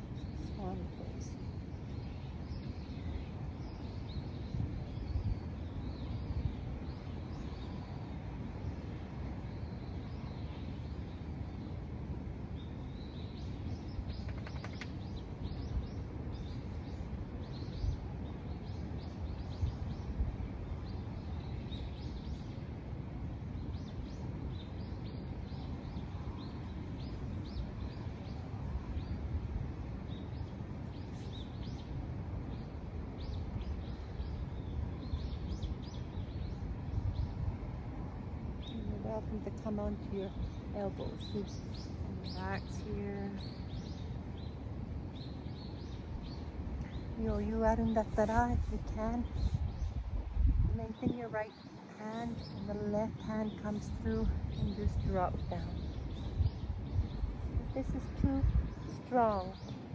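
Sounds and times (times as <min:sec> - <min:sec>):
small birds chirping: 0:00.0 - 0:37.8, 0:38.4 - 0:59.9.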